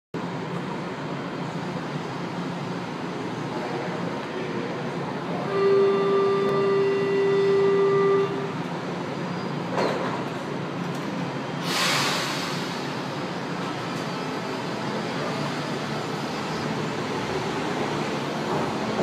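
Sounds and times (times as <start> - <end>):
door closing warning tone: 5.4 - 8.6
air hiss of doors: 11.6 - 13.2.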